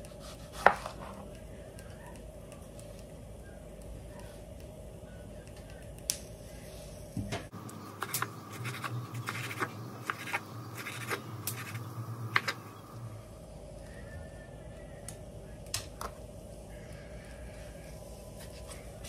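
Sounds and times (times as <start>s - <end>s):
knife chopping on wooden board: 8.0s - 12.6s.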